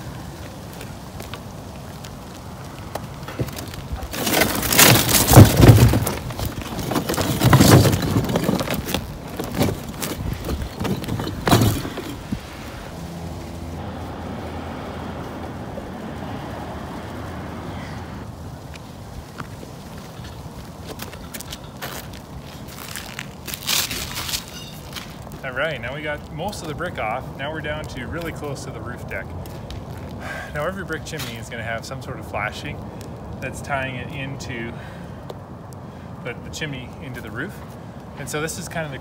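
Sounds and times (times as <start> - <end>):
bricks clattering and crashing: 2.9 - 12.4, 19.4 - 25.4.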